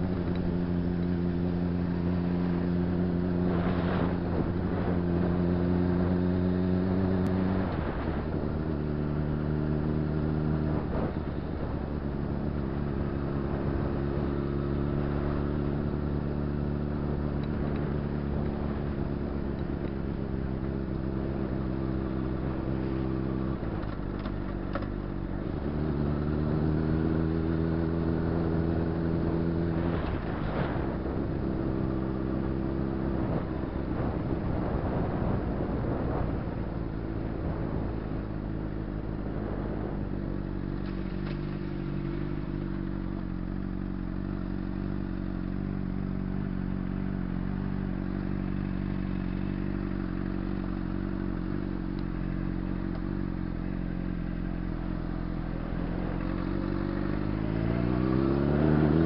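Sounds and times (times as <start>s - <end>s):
motorcycle engine running: 0.0s - 59.0s
wind noise: 2.8s - 9.9s, 28.2s - 42.1s.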